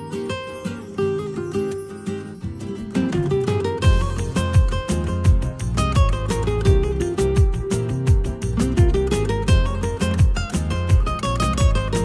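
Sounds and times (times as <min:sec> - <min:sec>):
acoustic guitar music: 0:00.0 - 0:12.0
deep bass beat: 0:03.8 - 0:12.0.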